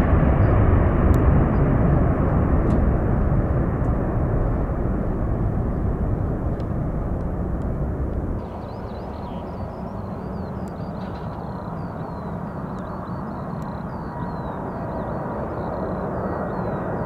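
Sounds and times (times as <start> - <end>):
jet engine roar: 0.0 - 17.0
faint bird chirps: 8.4 - 17.0.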